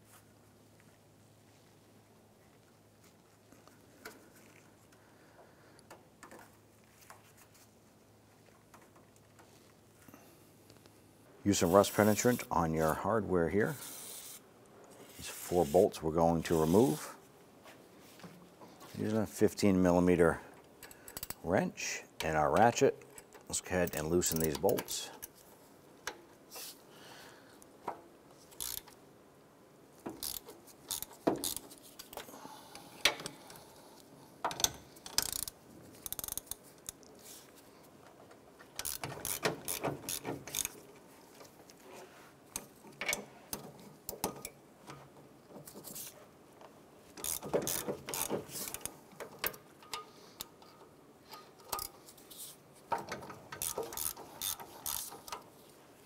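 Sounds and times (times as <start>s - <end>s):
hand ratchet clicking: 20.8s - 21.4s, 22.2s - 25.4s, 28.5s - 29.0s, 30.1s - 32.2s, 34.5s - 37.0s, 38.8s - 40.8s, 47.2s - 50.5s, 51.7s - 52.0s, 53.0s - 55.5s.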